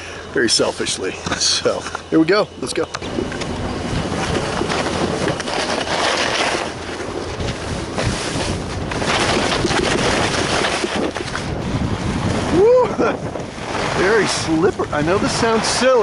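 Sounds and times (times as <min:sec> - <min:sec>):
wind rushing over microphone: 0:00.0 - 0:16.0
skis scraping over snow: 0:04.0 - 0:12.6, 0:13.4 - 0:16.0.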